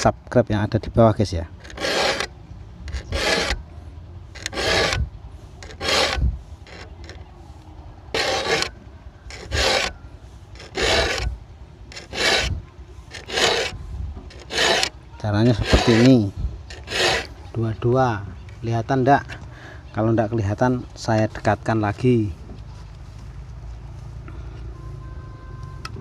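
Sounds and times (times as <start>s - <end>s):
file rasping on saw teeth: 1.6s - 2.3s, 2.9s - 3.6s, 4.4s - 7.2s, 8.1s - 8.7s, 9.3s - 10.0s, 10.6s - 11.3s, 11.9s - 17.4s.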